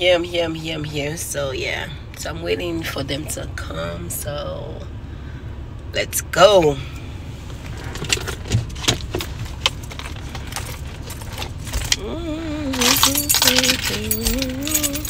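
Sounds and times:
woman humming a tune: 0:12.0 - 0:15.0
small metal objects jangling: 0:12.7 - 0:15.0.

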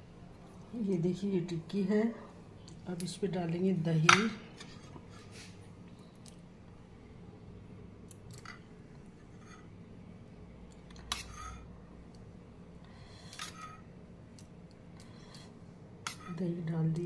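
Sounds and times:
low steady hum: 0:00.0 - 0:17.0
spoon scraping a steel bowl: 0:09.2 - 0:09.7, 0:11.0 - 0:11.7, 0:13.0 - 0:13.9, 0:16.0 - 0:16.4.

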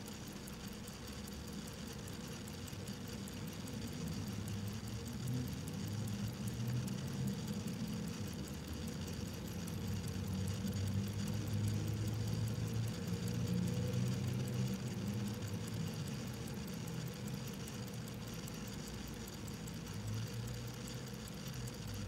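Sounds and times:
mechanical watch ticking: 0:00.0 - 0:22.0
steady low hum: 0:00.0 - 0:22.0.

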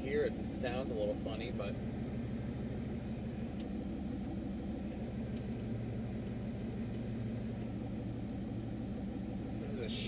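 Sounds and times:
truck engine and exhaust drone: 0:00.0 - 0:10.0.

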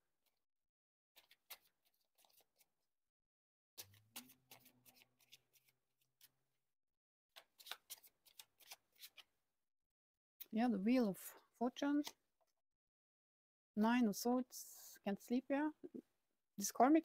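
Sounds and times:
cards being shuffled: 0:01.2 - 0:02.8, 0:03.8 - 0:06.4, 0:07.4 - 0:09.3.

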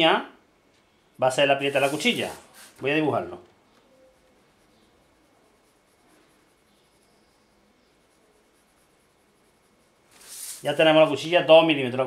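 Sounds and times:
pencil scratching on paper: 0:03.9 - 0:11.2.

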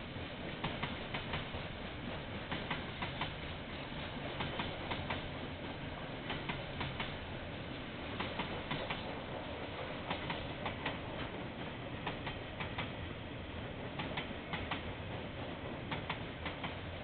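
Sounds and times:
train rumble: 0:00.0 - 0:17.0
train wheels clicking over rail joints: 0:00.0 - 0:17.0.

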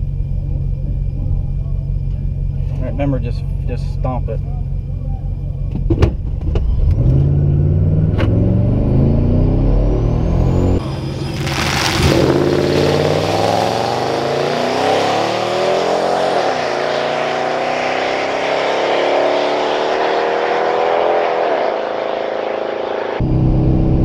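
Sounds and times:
pickup engine revving at full throttle: 0:06.7 - 0:24.0.

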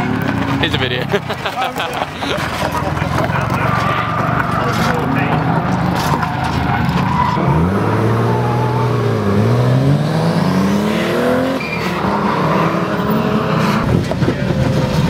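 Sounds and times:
car engines revving: 0:00.0 - 0:15.0
tyre squeal: 0:03.4 - 0:09.1, 0:11.4 - 0:13.8.

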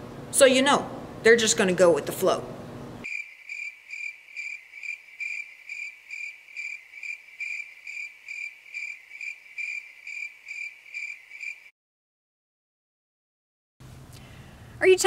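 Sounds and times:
crickets chirping: 0:03.0 - 0:11.7.

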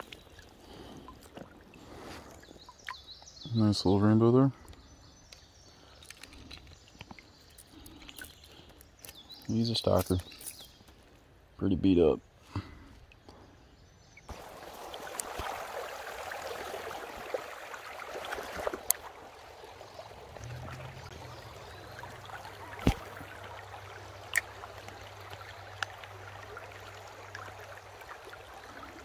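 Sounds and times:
creek water babbling: 0:00.0 - 0:04.0, 0:12.6 - 0:29.0.

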